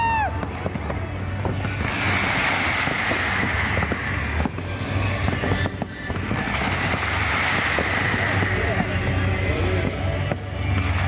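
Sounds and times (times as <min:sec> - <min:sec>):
fireworks crackling and popping: 0:00.0 - 0:11.0
fireworks hiss: 0:01.4 - 0:11.0.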